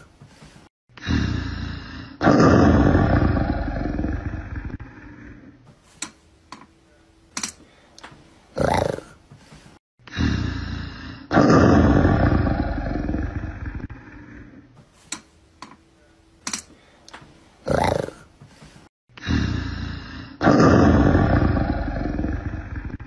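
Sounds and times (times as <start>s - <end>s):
big cat roaring: 1.0s - 5.4s, 8.5s - 9.2s, 10.1s - 14.4s, 17.6s - 18.2s, 19.2s - 23.0s.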